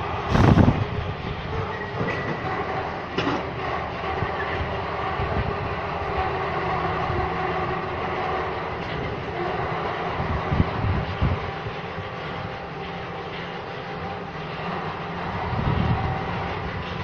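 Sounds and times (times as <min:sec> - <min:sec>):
crane rumbling and rattling: 0:00.0 - 0:17.0.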